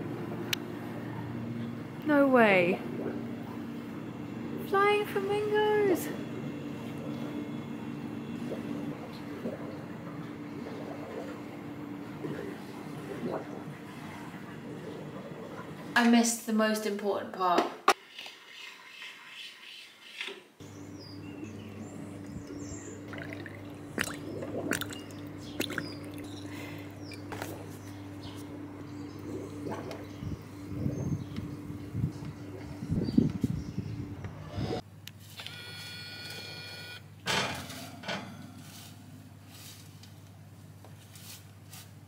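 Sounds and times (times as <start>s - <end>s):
steady low hum: 0.0s - 16.3s, 20.6s - 35.1s
liquid sounds: 2.5s - 16.2s, 21.1s - 34.8s
high ringing tone: 35.5s - 37.0s.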